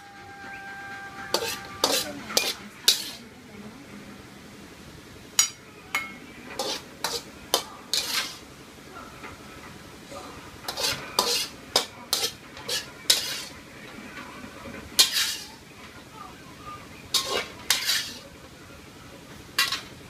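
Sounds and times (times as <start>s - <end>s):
metal spatula scraping a wok: 0.0s - 3.2s, 6.5s - 8.5s, 10.6s - 13.6s, 15.0s - 15.6s, 17.1s - 18.3s, 19.6s - 20.0s
spatula clinking on a plate: 1.3s - 3.2s, 5.4s - 8.4s, 10.7s - 13.5s, 15.0s - 15.5s, 17.1s - 18.2s, 19.6s - 19.9s.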